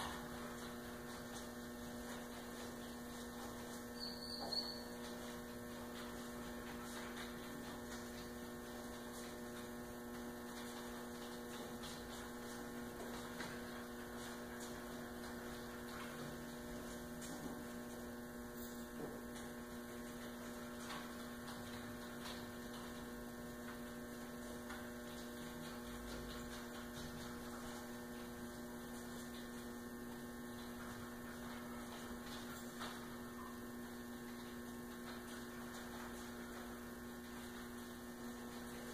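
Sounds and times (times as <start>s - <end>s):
electrical mains hum: 0.0s - 38.9s.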